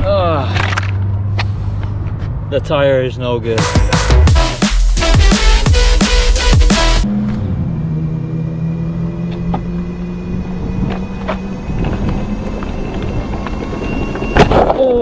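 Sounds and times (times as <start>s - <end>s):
scooter wheels rolling on asphalt: 9.3s - 15.0s.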